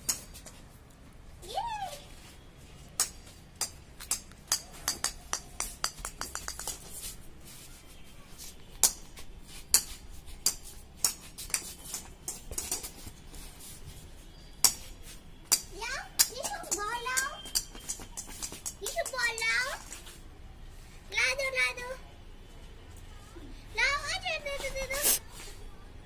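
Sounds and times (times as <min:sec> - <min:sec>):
ball bouncing on tiled floor: 0:03.0 - 0:07.0, 0:08.7 - 0:13.2, 0:14.6 - 0:19.6.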